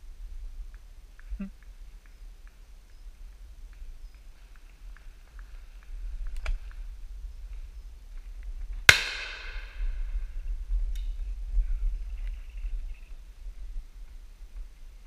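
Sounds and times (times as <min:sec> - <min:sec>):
wind rumble on microphone: 0:00.0 - 0:15.0
loud shotgun crack: 0:08.9 - 0:09.9
faint sharp cracks: 0:08.9 - 0:10.0.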